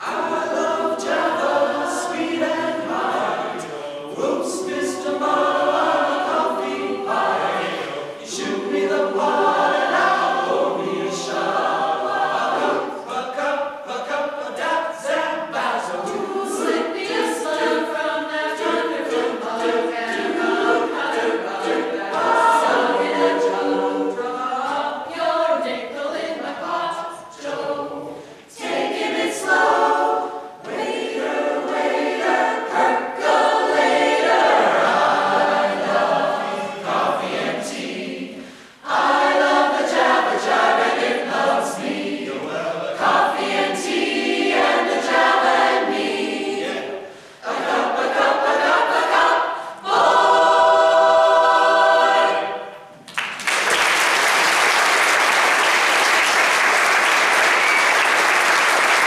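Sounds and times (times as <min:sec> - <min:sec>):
mixed choir singing: 0:00.0 - 0:59.0
audience applause: 0:53.1 - 0:59.0.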